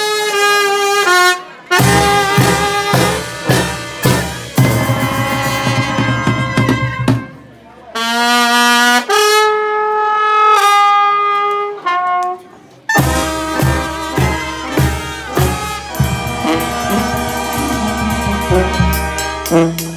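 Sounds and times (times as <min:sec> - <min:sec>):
brass band playing: 0:00.0 - 0:19.9
bass drum and snare beating: 0:01.8 - 0:07.3, 0:13.0 - 0:19.9.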